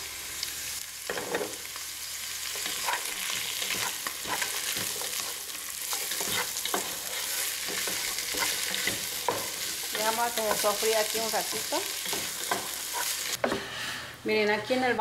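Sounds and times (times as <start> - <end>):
vegetables and sausage sizzling: 0.0 - 15.0
wooden spoon scraping pot: 3.7 - 10.8.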